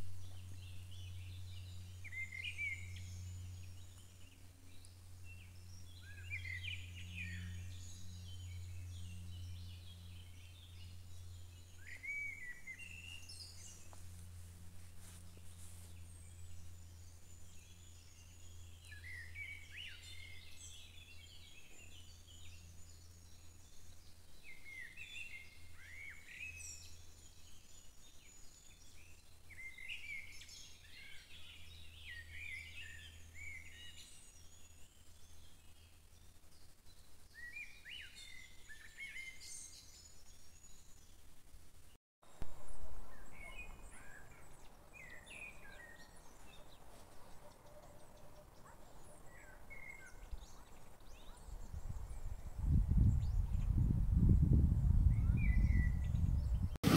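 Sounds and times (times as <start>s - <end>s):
steady low hum: 0.0s - 25.8s
songbirds chirping: 0.0s - 56.9s.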